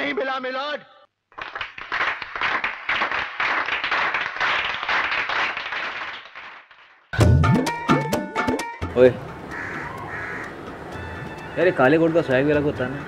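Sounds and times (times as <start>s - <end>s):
crowd applauding: 1.3s - 7.0s
music: 7.2s - 9.2s, 10.9s - 13.0s.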